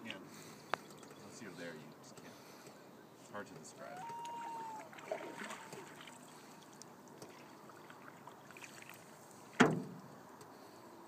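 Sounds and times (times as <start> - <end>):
water trickling off paddle: 3.8 - 9.7.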